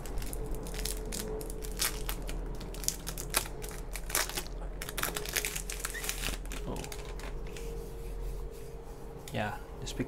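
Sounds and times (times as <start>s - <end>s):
plastic sleeve crinkling: 0.0s - 7.8s.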